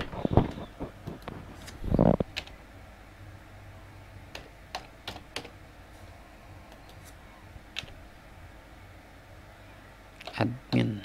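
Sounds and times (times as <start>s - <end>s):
keyboard keystrokes clicking: 4.3s - 5.5s.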